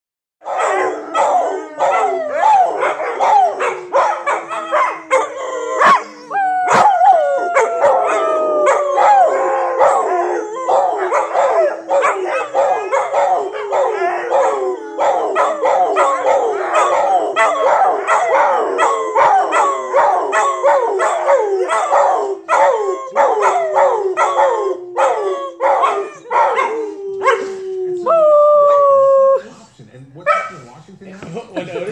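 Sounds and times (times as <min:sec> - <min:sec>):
dog long low howl: 0:04.6 - 0:21.7, 0:26.7 - 0:29.4
dog short howls and yips: 0:04.7 - 0:10.0.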